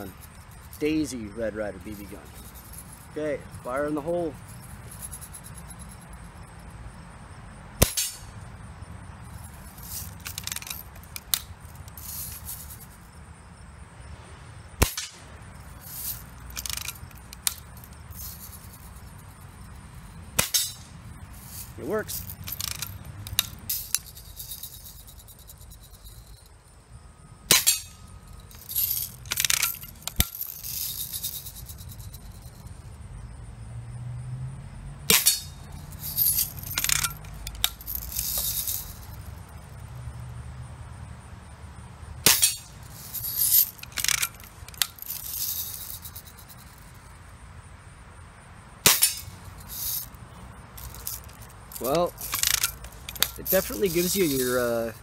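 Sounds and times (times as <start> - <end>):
bbs pinging off steel target: 14.8 - 15.2, 35.1 - 35.5, 42.3 - 42.7, 48.8 - 49.3.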